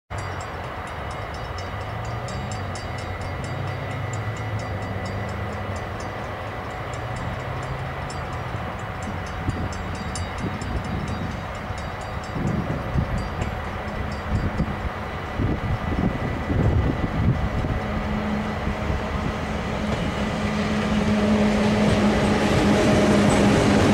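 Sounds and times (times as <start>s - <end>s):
train rumbling: 0.1s - 23.9s
wind on microphone: 9.0s - 21.1s.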